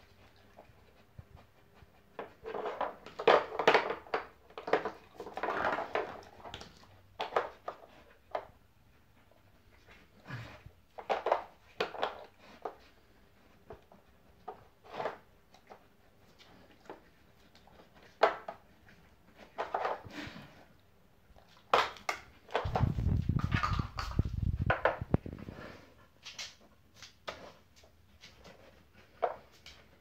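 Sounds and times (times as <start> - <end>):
plastic blocks knocking and scraping: 2.2 - 8.5, 10.9 - 12.8, 19.4 - 20.1, 21.5 - 25.4.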